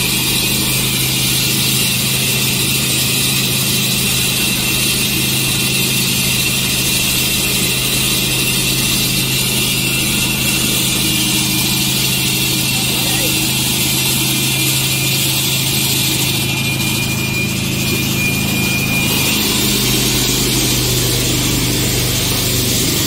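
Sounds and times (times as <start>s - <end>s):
floor saw engine running: 0.0s - 23.0s
saw blade grinding concrete: 0.0s - 23.0s.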